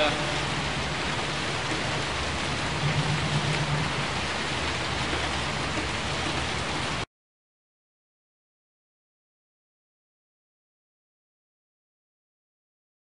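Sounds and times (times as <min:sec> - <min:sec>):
steady hiss of rain: 0:00.0 - 0:07.1
low rumble: 0:00.4 - 0:06.2.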